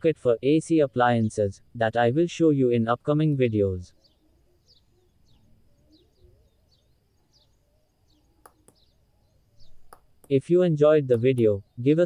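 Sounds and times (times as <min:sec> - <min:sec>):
faint bird chirps: 0:00.6 - 0:12.0.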